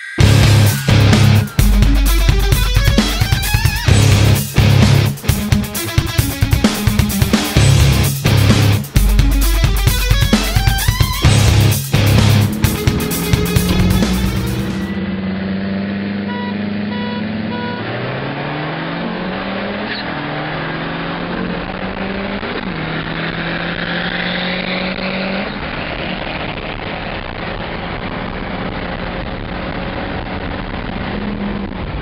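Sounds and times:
car engine accelerating: 0:00.2 - 0:32.0
wind and road noise: 0:06.2 - 0:32.0.

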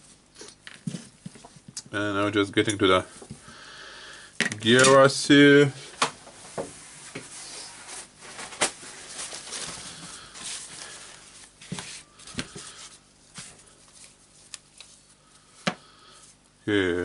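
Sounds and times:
paper towel rustling: 0:05.9 - 0:15.2.

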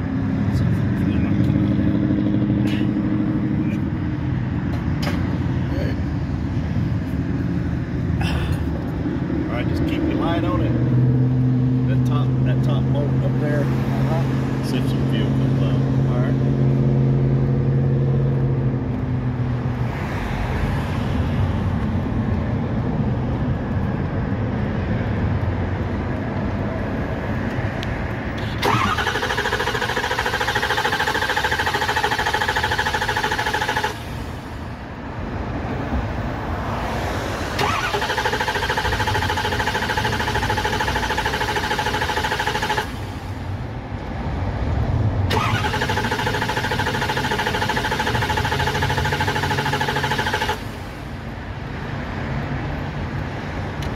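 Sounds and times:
starter motor cranking engine: 0:28.4 - 0:34.2, 0:37.6 - 0:43.2, 0:45.3 - 0:50.8.

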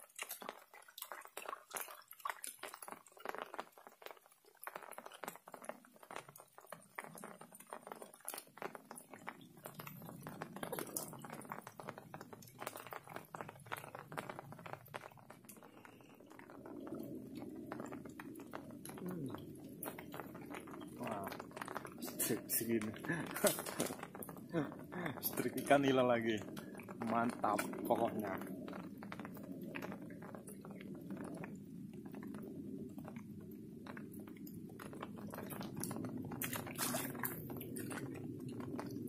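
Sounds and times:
raindrops ticking: 0:00.0 - 0:39.0
low murmuring voice: 0:19.0 - 0:19.4.

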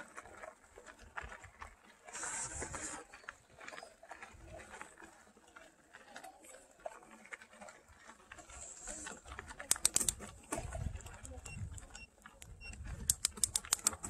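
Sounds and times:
bike tyres crunching on gravel: 0:00.0 - 0:09.7
bike clicks and rattles: 0:07.2 - 0:14.0.

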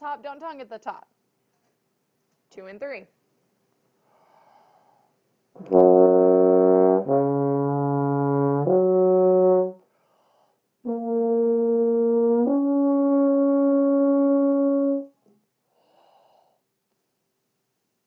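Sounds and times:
tuba playing slurred notes: 0:05.6 - 0:09.8, 0:10.8 - 0:15.2.

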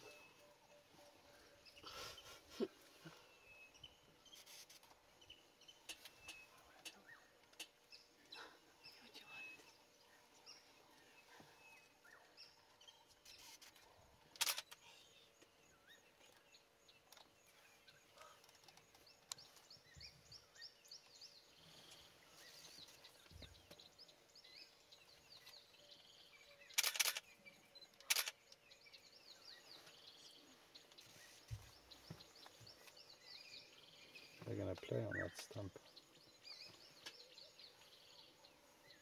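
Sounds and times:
small birds chirping: 0:00.0 - 0:39.0
camera shutter clicks: 0:14.4 - 0:14.8, 0:26.7 - 0:27.2, 0:28.0 - 0:28.4.

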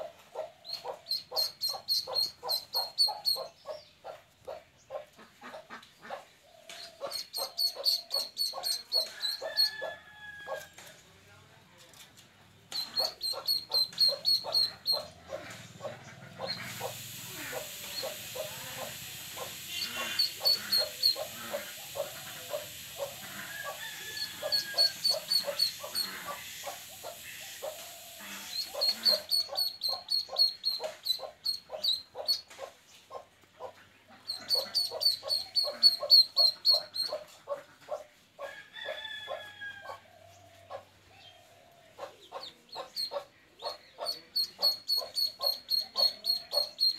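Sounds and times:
duckling peeping: 0:00.3 - 0:06.2, 0:06.8 - 0:09.7, 0:12.7 - 0:38.0, 0:42.0 - 0:46.9
steady hiss: 0:15.6 - 0:32.2.

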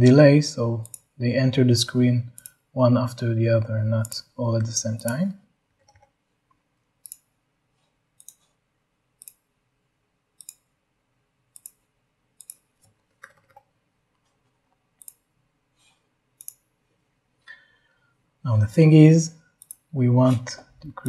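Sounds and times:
computer mouse clicking: 0:00.8 - 0:01.1, 0:02.3 - 0:02.6, 0:05.0 - 0:06.2, 0:07.0 - 0:07.3, 0:08.2 - 0:08.6, 0:09.2 - 0:09.4, 0:10.4 - 0:10.7, 0:11.5 - 0:11.8, 0:12.4 - 0:14.4, 0:15.0 - 0:15.2, 0:16.4 - 0:16.7, 0:19.6 - 0:19.9.

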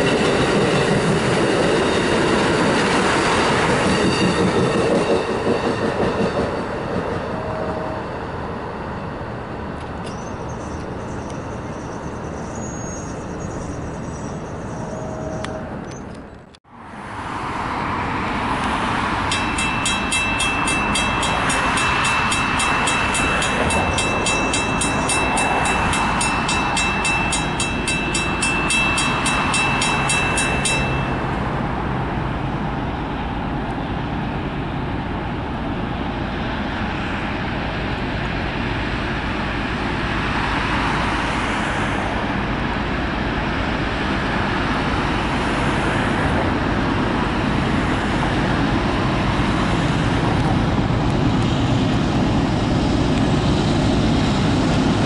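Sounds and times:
train cars rolling over rails: 0:18.5 - 0:33.6
railroad crossing bell ringing: 0:19.0 - 0:31.8.

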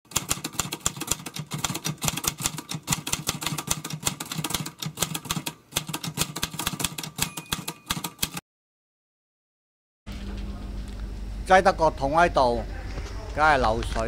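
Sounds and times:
typewriter key clicks: 0:00.1 - 0:08.4.

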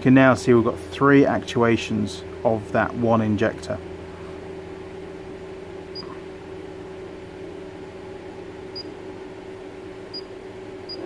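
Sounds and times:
steady low hum: 0:00.0 - 0:11.0
high electronic keypad beeps: 0:06.0 - 0:06.2.

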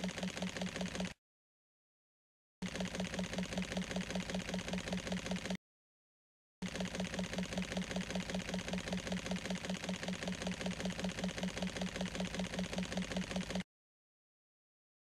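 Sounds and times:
rapid mechanical clatter: 0:00.0 - 0:01.2, 0:02.6 - 0:05.6, 0:06.6 - 0:13.7.

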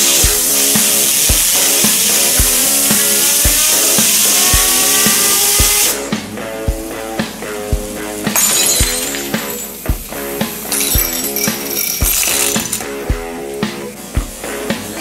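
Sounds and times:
air blow gun hissing: 0:00.0 - 0:06.3
background music with beat: 0:00.0 - 0:15.0.

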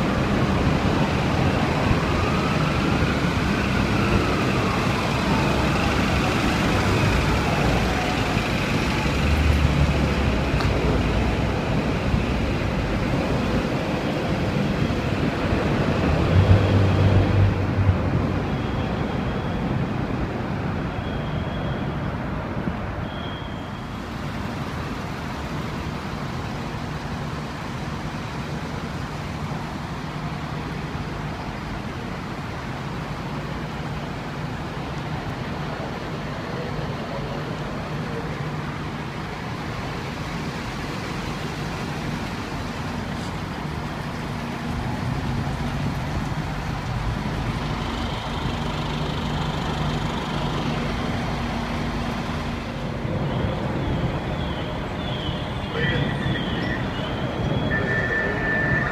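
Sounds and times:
vehicle engine and road noise: 0:00.0 - 0:58.9
siren wail: 0:00.7 - 0:08.8, 0:53.1 - 0:58.9
short high beeps: 0:55.8 - 0:58.9.

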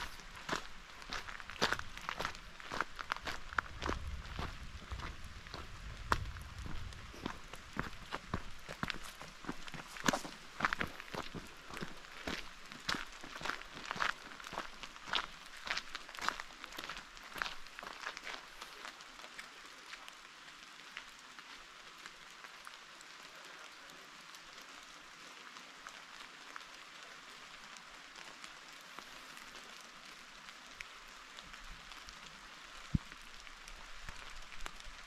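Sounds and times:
rain pattering: 0:00.0 - 0:35.0.

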